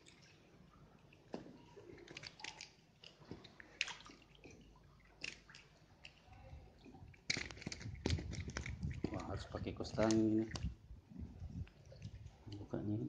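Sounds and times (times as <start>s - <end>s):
fish splashing at water surface: 1.1s - 6.3s, 7.1s - 9.2s.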